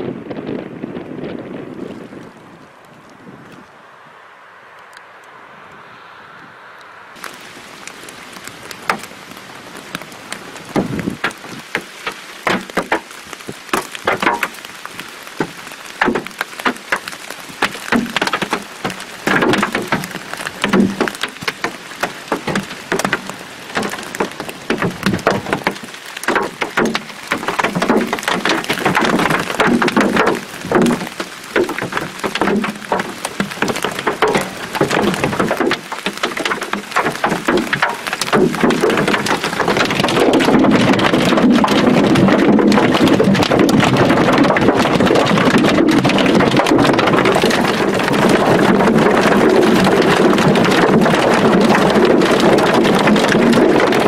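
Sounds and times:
hail falling: 7.2 - 54.0.

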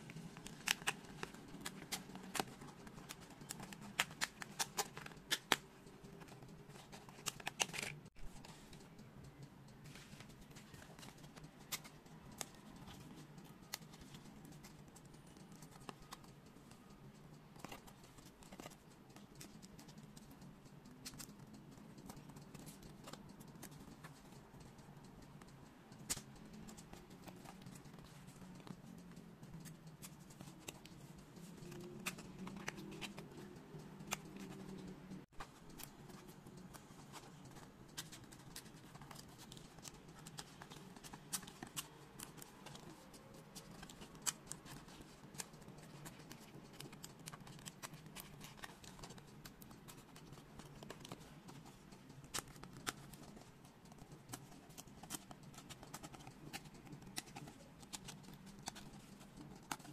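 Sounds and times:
puzzle pieces clicking and scratching: 30.0 - 59.9.

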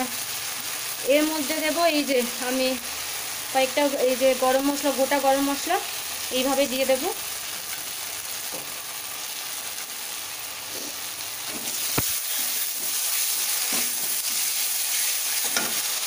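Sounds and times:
spices sizzling in oil: 0.0 - 16.0
spatula scraping pan: 10.6 - 15.9.

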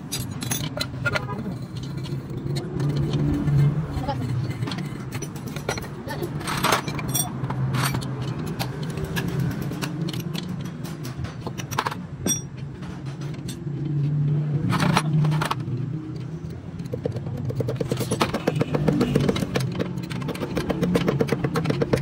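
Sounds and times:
metal tools clinking and scraping: 0.0 - 14.0, 14.6 - 16.3.

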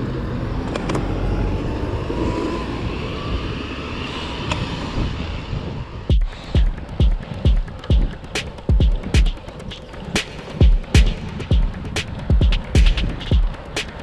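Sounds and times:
low rumbling road noise: 0.0 - 14.0
music with heavy regular beat: 6.1 - 14.0.

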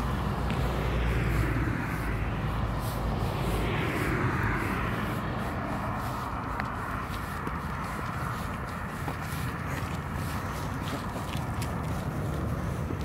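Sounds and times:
car driving past: 0.0 - 12.0.

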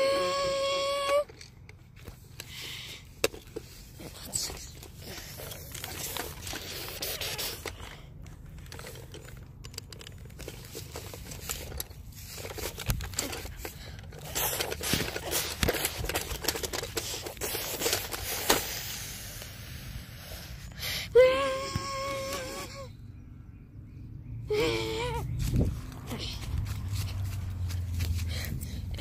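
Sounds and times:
plastic toy scraping: 1.1 - 19.2
rustling grass: 10.1 - 19.2, 25.3 - 29.0.

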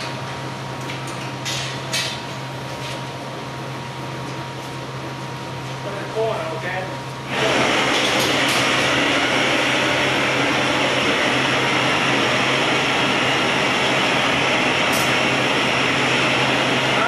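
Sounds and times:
propane torch hissing: 7.3 - 17.0.

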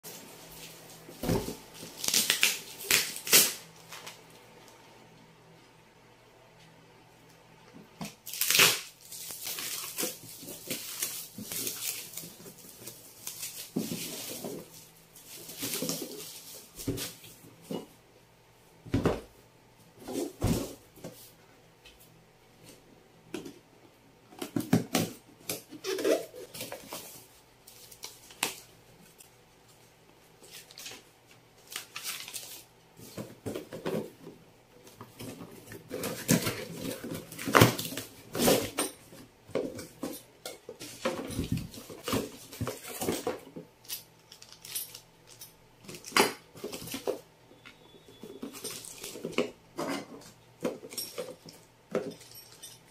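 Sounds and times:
plastic and paper rustling: 8.2 - 17.4, 25.6 - 34.2, 48.1 - 49.5.

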